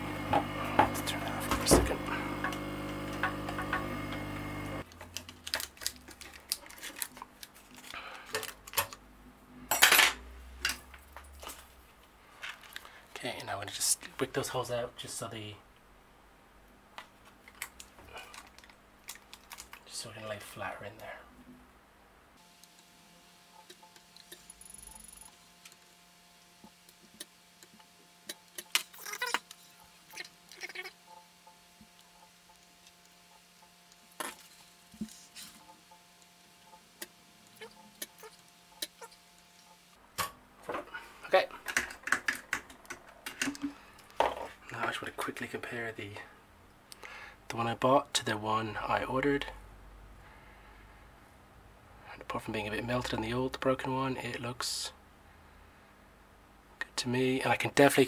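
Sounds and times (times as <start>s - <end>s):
tool motor humming: 0.0s - 4.8s
faint electrical hum: 0.0s - 58.0s
crackling and rustling: 4.8s - 9.0s, 17.0s - 20.5s
aluminium foil crinkling: 4.9s - 9.0s, 17.5s - 19.9s, 33.9s - 35.6s.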